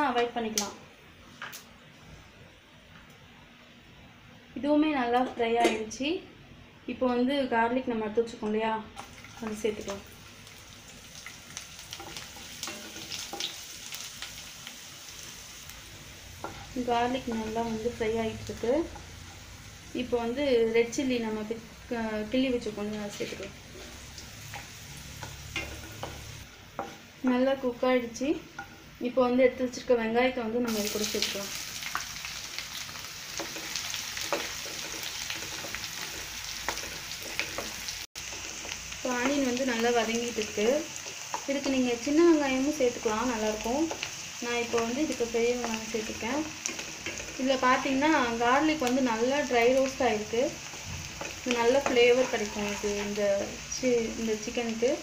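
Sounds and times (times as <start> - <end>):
small crackles and pops: 0.5 - 0.8
garlic sizzling in hot oil: 8.3 - 55.0
spatula scraping and knocking pan: 11.9 - 13.6, 22.9 - 27.0, 33.3 - 39.4, 44.7 - 47.6, 50.6 - 53.5
wooden spatula stirring: 33.4 - 38.9.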